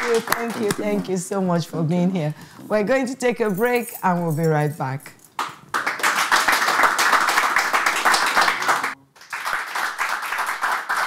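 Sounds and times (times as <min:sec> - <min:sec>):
audience applauding: 0:00.0 - 0:01.0, 0:05.4 - 0:11.0.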